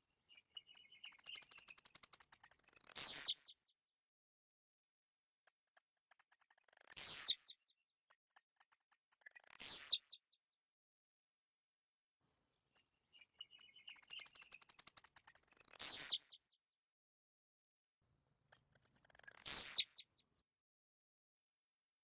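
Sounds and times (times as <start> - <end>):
bird singing high-pitched: 0.2 - 3.7, 6.4 - 7.7, 8.6 - 10.4, 12.8 - 16.6, 18.5 - 20.2.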